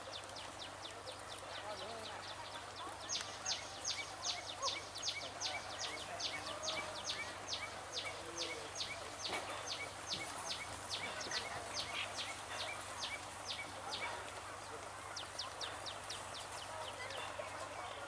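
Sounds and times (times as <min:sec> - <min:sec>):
faint outdoor hiss: 0:00.0 - 0:18.0.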